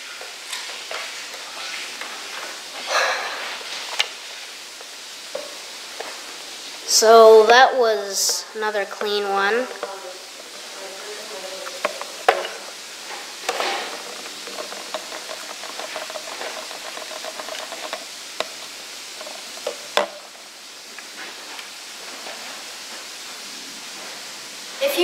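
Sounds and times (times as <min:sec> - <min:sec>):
steady hiss: 0:00.0 - 0:25.0.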